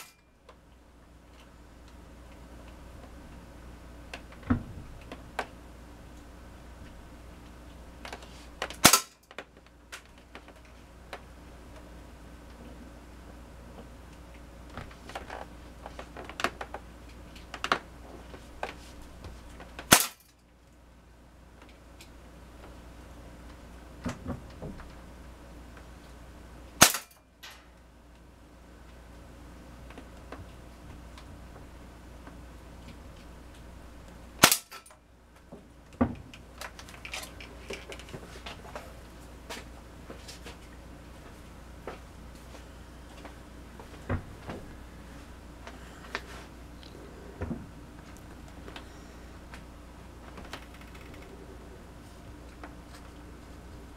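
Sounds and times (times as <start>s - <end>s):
rifle handling clicks and knocks: 8.0s - 11.9s, 14.2s - 20.4s, 34.4s - 38.9s
pellet rifle firing: 8.8s - 9.2s, 19.9s - 20.3s, 26.8s - 27.2s, 34.4s - 34.9s.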